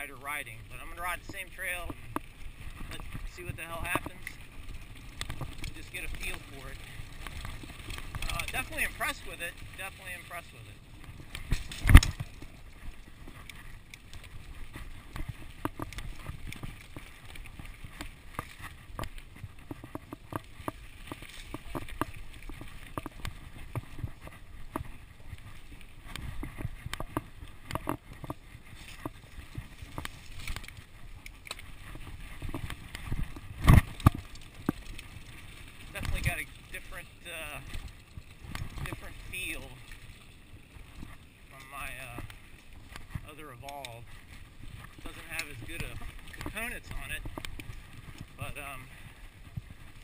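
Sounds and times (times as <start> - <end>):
bike tyres rolling on dirt: 0.0 - 50.0.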